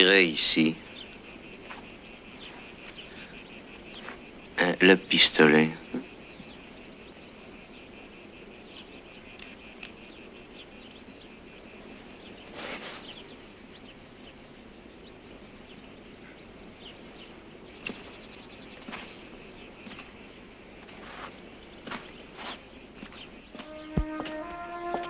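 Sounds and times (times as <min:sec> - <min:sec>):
bird chirps: 0:00.0 - 0:25.0
insects trilling: 0:00.0 - 0:25.0.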